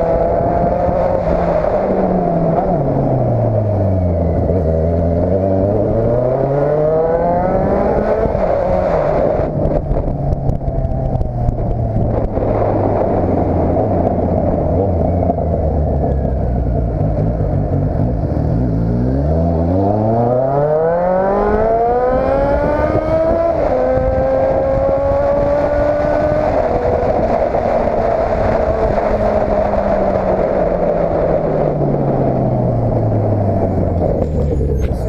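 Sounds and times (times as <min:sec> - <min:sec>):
motorcycle engine accelerating: 0:00.0 - 0:35.0
wind noise: 0:00.0 - 0:35.0.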